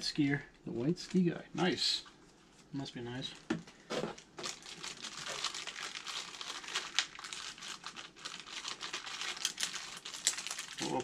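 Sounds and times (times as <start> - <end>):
packaging crinkling and tearing: 3.3 - 11.0.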